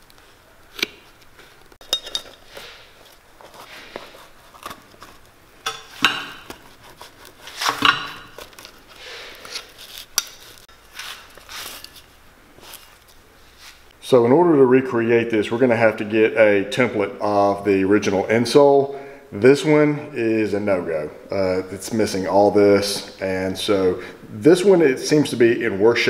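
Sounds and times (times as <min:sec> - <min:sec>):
knife scraping boot sole: 0:06.0 - 0:08.7.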